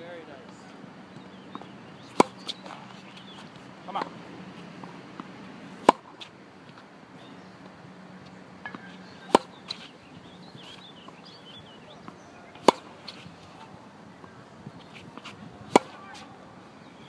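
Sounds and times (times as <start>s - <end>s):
tennis racket hitting ball: 2.1s - 3.0s, 5.2s - 6.3s, 8.6s - 9.9s, 12.0s - 13.7s, 14.7s - 16.4s.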